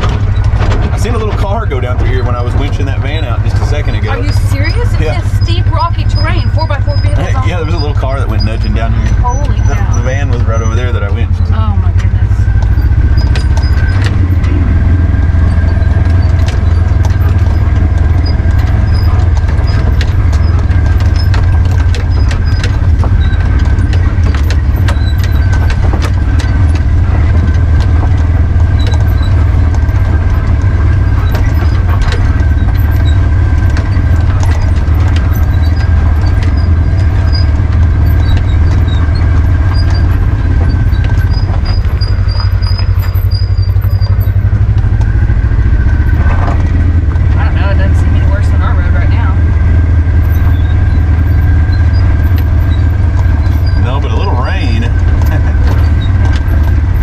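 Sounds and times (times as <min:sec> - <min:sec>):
clicks and knocks from the ride: 0:00.0 - 0:04.1, 0:08.0 - 0:57.0
loud low engine drone: 0:00.0 - 0:57.0
thin steady whine: 0:01.0 - 0:57.0.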